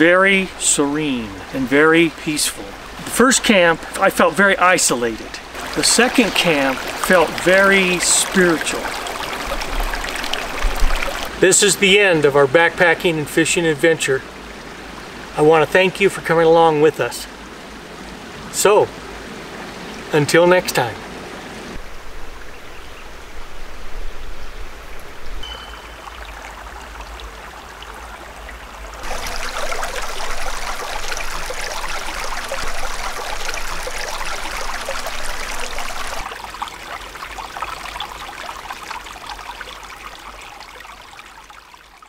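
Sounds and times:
creek water rushing: 0.0s - 42.0s.

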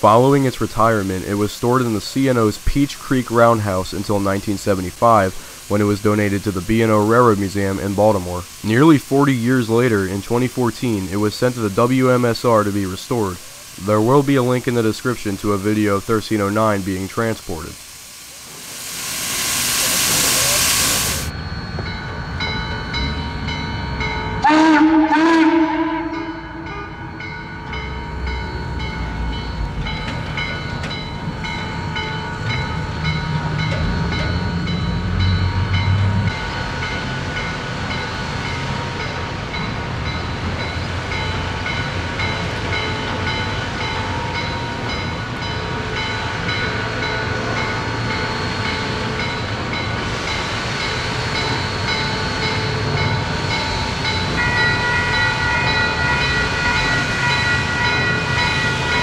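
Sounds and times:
hiss of escaping steam: 0.0s - 21.3s, 25.4s - 55.1s
locomotive bell ringing: 20.2s - 59.0s
steam whistle blast: 24.4s - 27.2s.

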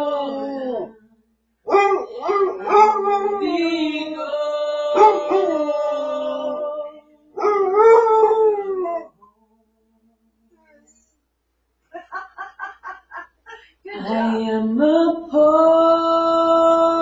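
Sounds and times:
dog howling: 1.7s - 6.8s, 7.4s - 9.1s.

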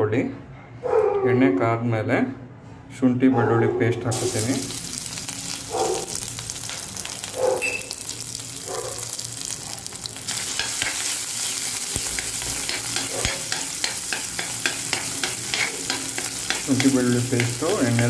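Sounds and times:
oil crackling and spattering: 4.1s - 18.0s
paste sizzling in hot oil: 4.1s - 18.0s
spoon scraping pan: 10.3s - 18.0s.

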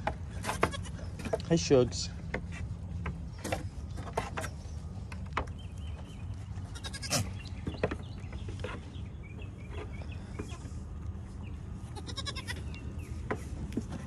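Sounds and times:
goats bleating: 6.7s - 7.3s, 11.9s - 12.6s.

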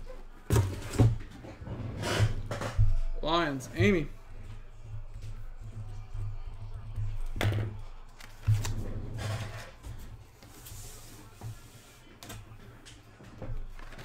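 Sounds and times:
cards rustling: 8.1s - 9.6s.

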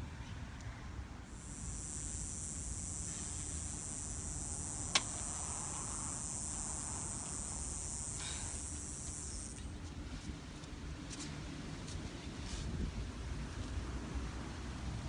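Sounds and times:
insects buzzing: 1.3s - 9.7s
sharp click: 4.9s - 5.9s.

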